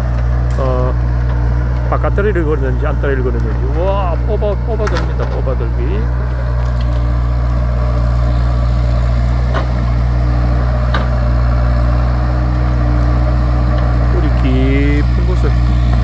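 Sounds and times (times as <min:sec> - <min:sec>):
diesel engine running under load: 0:00.0 - 0:16.0
steady whine: 0:00.0 - 0:16.0
faint cracks of roots: 0:06.2 - 0:09.8.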